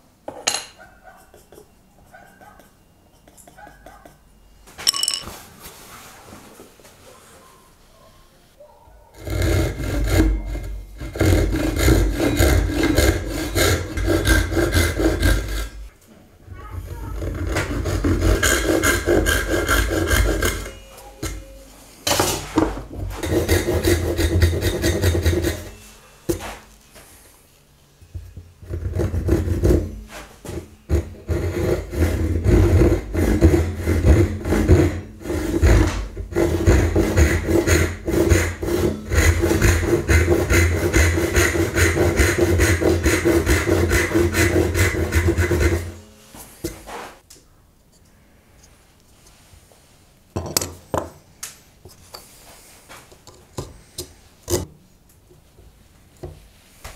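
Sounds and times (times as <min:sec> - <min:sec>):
hand saw cutting wood: 0:09.2 - 0:15.9, 0:16.9 - 0:20.8, 0:22.4 - 0:25.8, 0:28.6 - 0:46.0.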